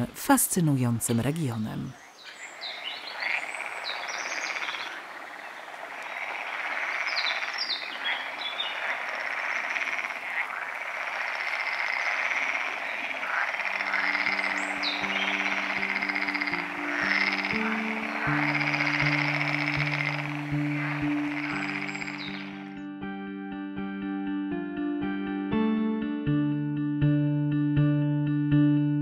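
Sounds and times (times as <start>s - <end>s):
frogs trilling chorus: 1.5s - 22.8s
high bird chirps: 1.9s - 10.0s, 12.6s - 22.7s
soft sustained music notes: 12.9s - 29.0s.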